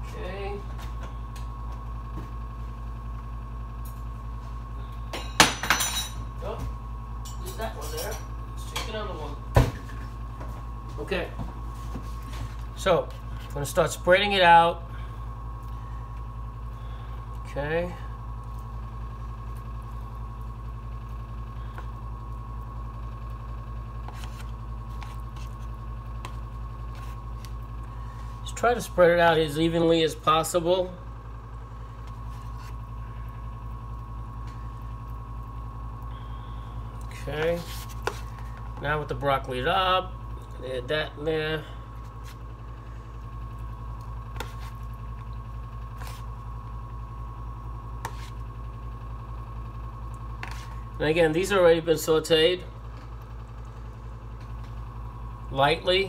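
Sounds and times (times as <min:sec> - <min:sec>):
appliance hum with thin whine: 0:00.0 - 0:56.0
utensil scraping paper plate: 0:24.0 - 0:27.6, 0:37.1 - 0:38.6, 0:44.3 - 0:44.9, 0:46.0 - 0:46.3, 0:48.0 - 0:48.4, 0:50.4 - 0:50.8.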